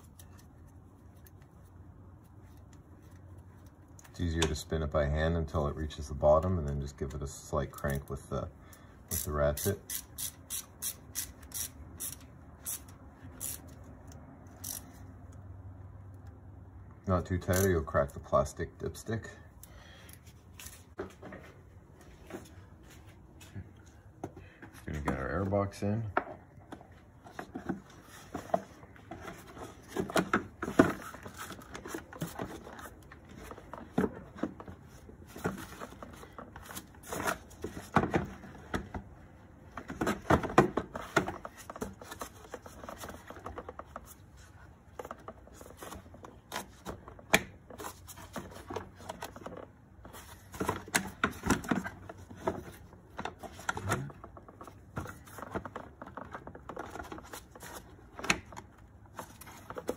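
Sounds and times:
plastic knocking and scraping: 26.1 - 39.1, 39.7 - 59.9.

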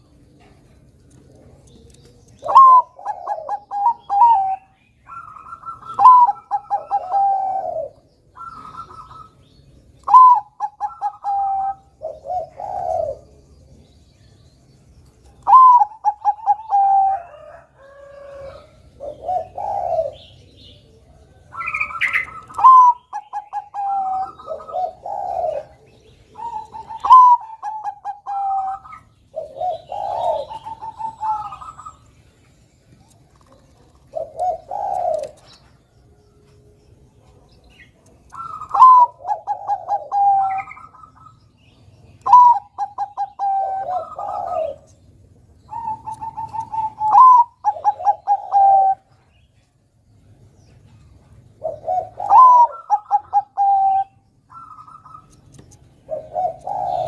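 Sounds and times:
dove cooing: 0.0 - 13.9, 15.4 - 32.4, 33.0 - 36.3, 37.2 - 49.5, 50.8 - 57.0
higher stuttering coo: 18.2 - 20.3, 22.5 - 25.8, 26.4 - 32.0, 38.5 - 40.9, 42.3 - 44.9, 45.7 - 49.1, 51.6 - 55.0, 56.1 - 57.0.

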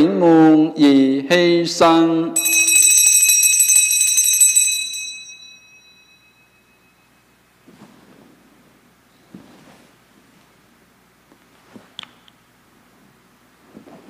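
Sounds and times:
altar bells jingling: 2.4 - 7.0.

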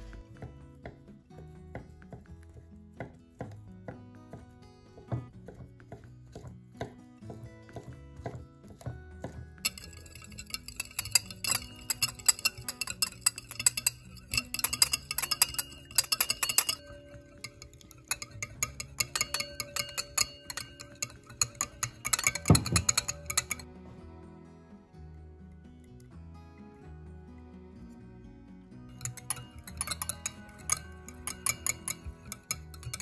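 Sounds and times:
background music: 0.0 - 33.0
kitchen prep clicks and clinks: 7.8 - 23.6, 29.0 - 33.0.

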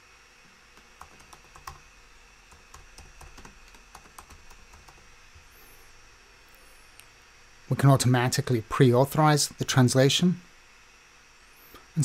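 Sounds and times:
computer keyboard typing: 0.8 - 1.9, 2.5 - 5.1.

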